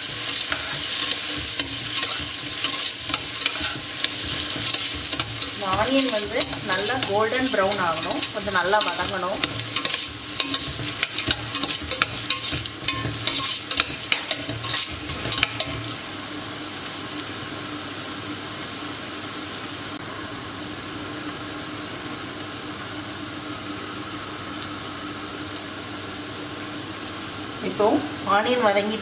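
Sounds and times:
metal spatula scraping a pot: 0.0s - 15.8s
onions sizzling in a pot: 0.0s - 29.0s.

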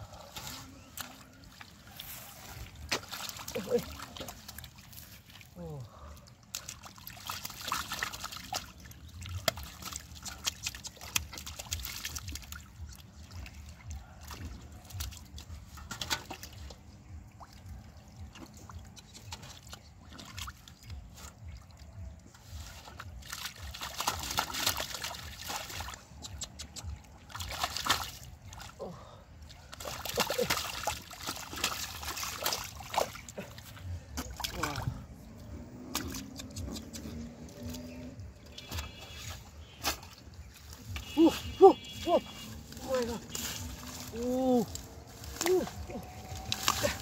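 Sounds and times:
fish thrashing in water: 0.0s - 5.6s, 6.3s - 47.0s
muddy water splashing: 0.0s - 47.0s.

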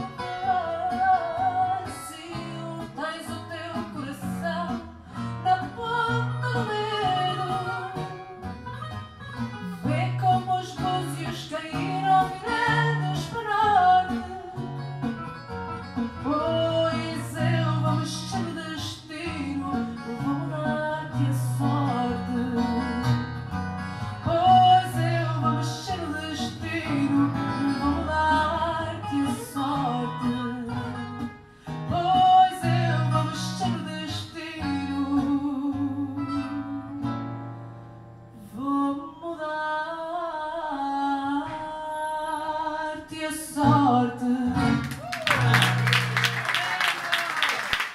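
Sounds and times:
woman singing into microphone: 0.0s - 14.9s, 16.0s - 23.4s, 24.0s - 37.5s, 38.3s - 45.5s
plucked guitar: 0.0s - 39.8s, 40.5s - 47.2s
applause: 44.8s - 47.9s.

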